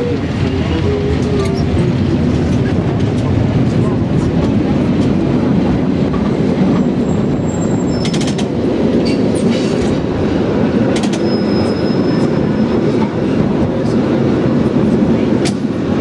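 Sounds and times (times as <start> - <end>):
cable car rumbling on track: 0.0 - 16.0
high metallic squeal: 11.2 - 12.7.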